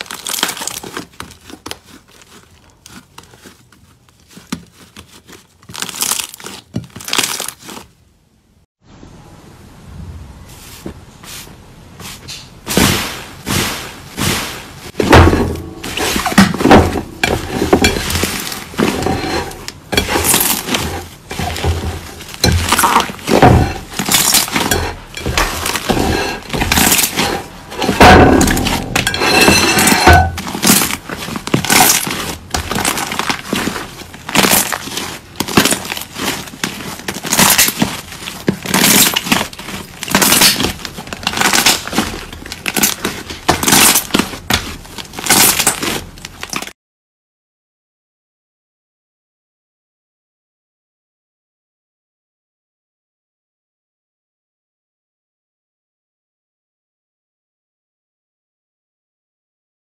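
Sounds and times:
slime squelching and popping: 0:30.4 - 0:46.6.

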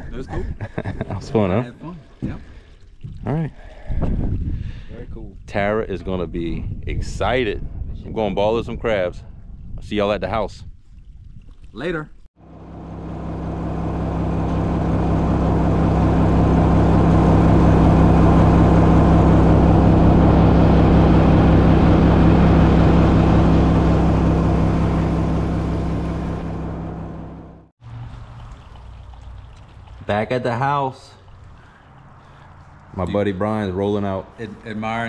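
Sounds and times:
vehicle engine running: 0:12.4 - 0:28.3
road and wind noise: 0:31.2 - 0:35.0.

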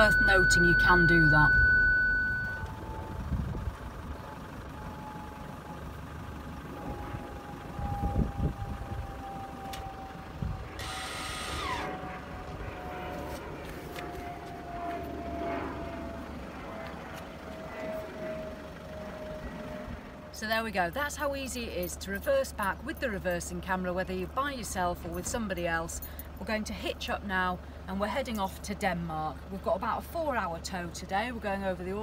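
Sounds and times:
parking sensor warning tone: 0:00.0 - 0:12.1
low vehicle rumble: 0:00.0 - 0:32.0.

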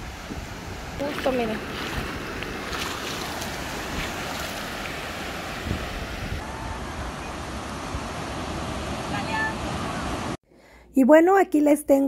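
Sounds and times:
small waves washing ashore: 0:00.0 - 0:10.4
wind noise on microphone: 0:03.7 - 0:10.3.

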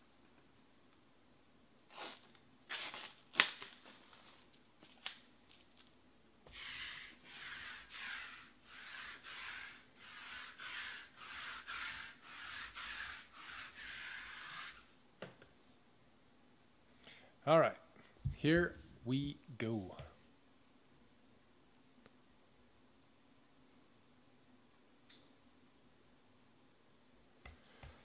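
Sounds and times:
lint roller scratching over table: 0:06.5 - 0:14.9.

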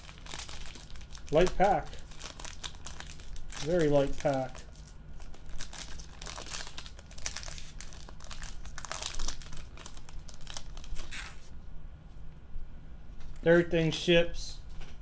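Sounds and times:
foil wrapper crinkling: 0:00.0 - 0:11.5.

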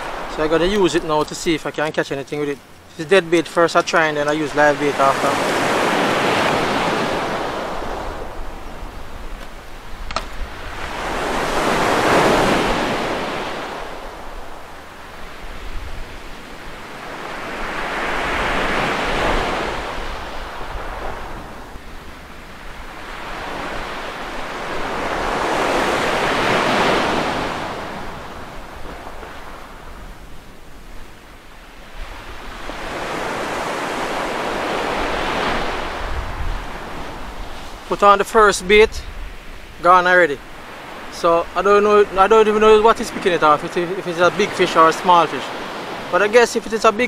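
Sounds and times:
surf breaking on beach: 0:00.0 - 0:47.0
wind rumble on microphone: 0:06.1 - 0:33.0, 0:34.6 - 0:37.9.

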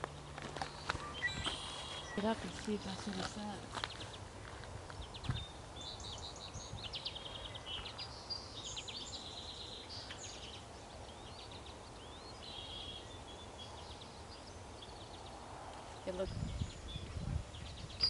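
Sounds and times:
songbirds singing: 0:00.0 - 0:18.0.

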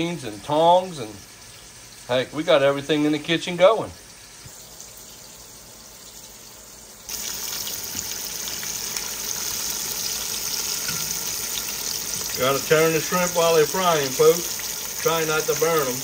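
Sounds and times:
shrimp deep-frying in oil: 0:00.0 - 0:16.0.

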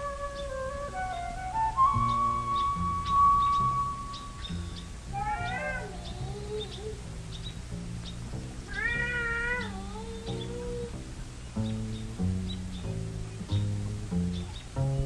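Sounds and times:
low line of short notes: 0:00.0 - 0:05.2
wavering pitch-bending melody: 0:00.0 - 0:07.6.

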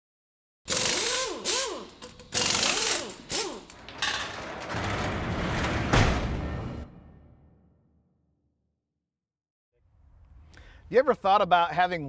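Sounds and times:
dense rumble: 0:04.2 - 0:07.5.

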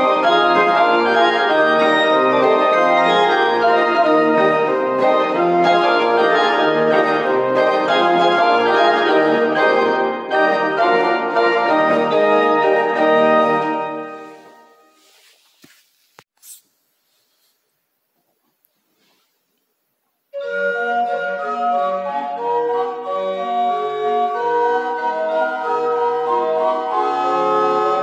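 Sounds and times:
church organ chords: 0:00.0 - 0:14.8, 0:20.4 - 0:28.0.

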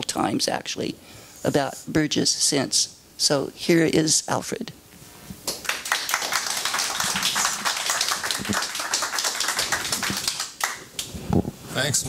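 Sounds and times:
audience applauding: 0:05.5 - 0:11.0.

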